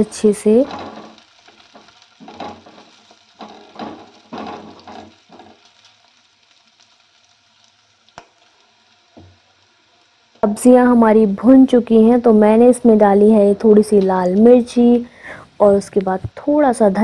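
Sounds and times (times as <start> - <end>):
vegetables sizzling in oil: 0.0 - 17.0
spatula scraping vegetables: 0.5 - 5.7.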